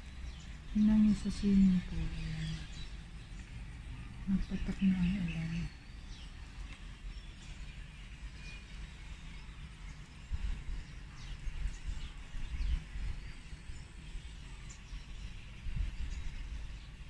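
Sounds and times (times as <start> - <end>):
wind buffeting microphone: 9.6 - 17.0.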